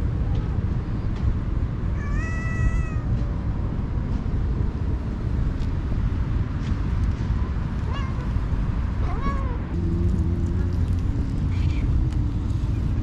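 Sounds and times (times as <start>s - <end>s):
low background rumble: 0.0s - 13.0s
cat meowing: 2.0s - 3.2s, 7.9s - 8.4s, 9.0s - 9.7s.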